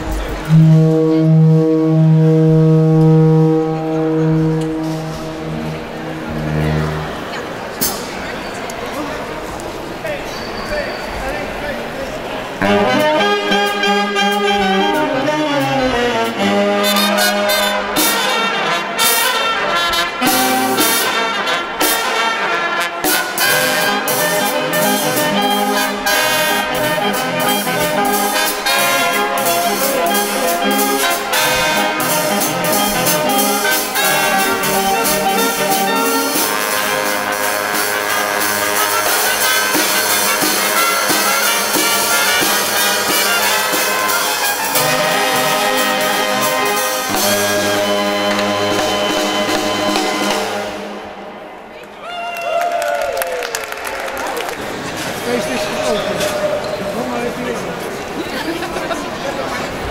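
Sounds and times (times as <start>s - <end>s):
clarinet: 0.0s - 7.5s, 12.6s - 51.1s
saxophones: 0.0s - 7.8s, 12.6s - 51.6s
trumpet: 0.0s - 8.0s, 12.6s - 51.5s
snare drum: 23.0s - 50.9s.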